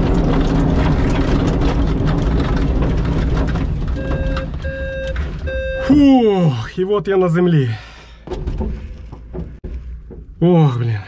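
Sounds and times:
airframe knocks and rattles: 0.0 - 5.8, 8.2 - 10.5
wheel rumbling over grass: 0.0 - 5.9.

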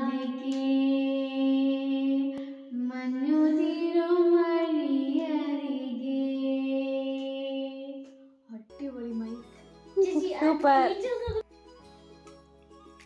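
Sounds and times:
girl singing into a microphone: 0.0 - 8.0.

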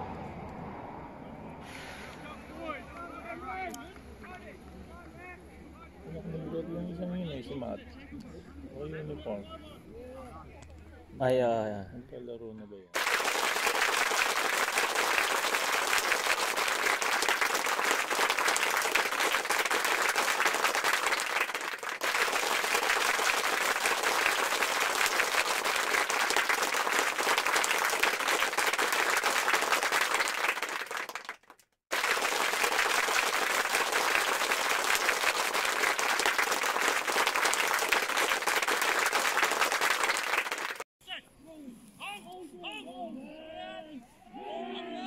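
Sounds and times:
crowd applause: 13.0 - 40.8.

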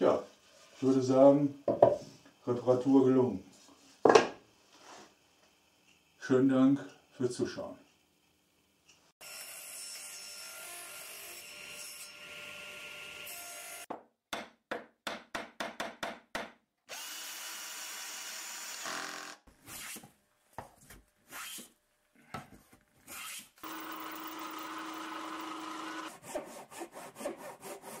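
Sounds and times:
power tool running: 16.9 - 19.4, 23.6 - 26.1.

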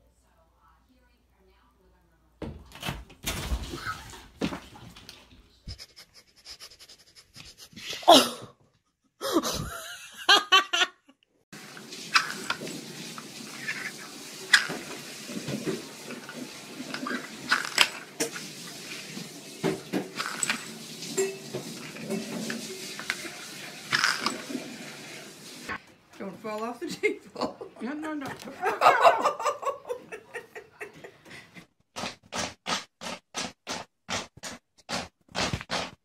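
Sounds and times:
person laughing: 5.6 - 8.6, 9.2 - 11.2, 27.0 - 31.7.

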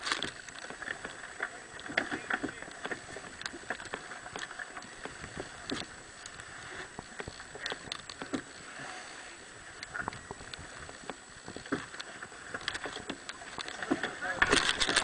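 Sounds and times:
clicks and knocks of winches: 9.8 - 15.0.

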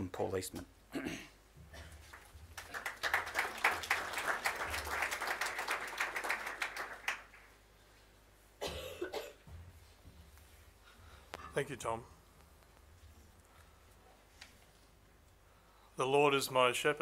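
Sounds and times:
audience applauding: 2.0 - 7.6.

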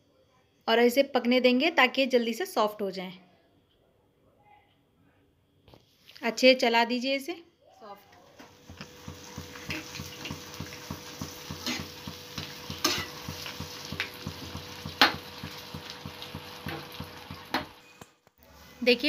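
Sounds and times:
faint sizzle: 7.8 - 19.0
spoon knocking against pan: 8.6 - 17.7
spoon scraping in frying pan: 8.8 - 17.9.

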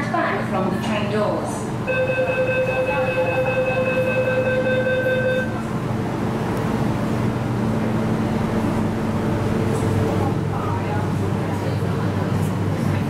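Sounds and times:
train carriage rumble: 0.0 - 13.0
steady high tone: 1.9 - 10.8.

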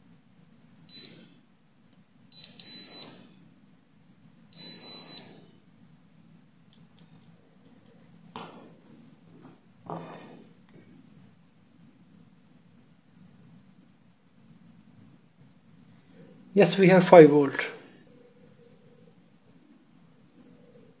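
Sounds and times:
multimeter beeping: 0.6 - 1.2, 2.3 - 3.3, 4.5 - 5.4.

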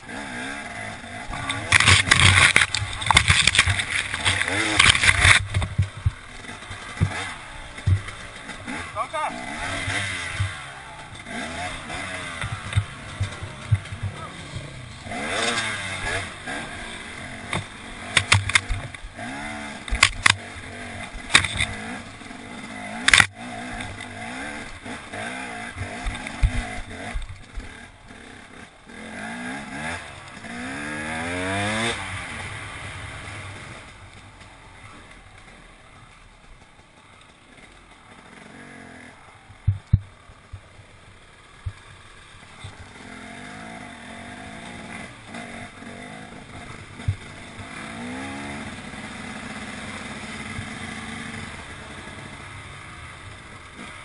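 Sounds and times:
motorcycle engine revving: 0.0 - 54.0
sharp knocks and clatter: 1.3 - 8.9, 9.9 - 16.3, 17.4 - 19.1, 19.9 - 22.1, 39.6 - 40.7.

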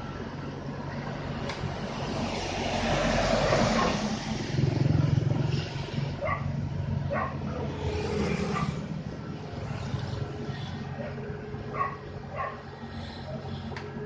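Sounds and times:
diesel engine running: 0.0 - 14.0
motorbike passing: 1.7 - 14.0
dog barking: 3.7 - 4.0, 6.2 - 6.5, 7.1 - 7.4, 8.5 - 8.8, 11.0 - 12.6.

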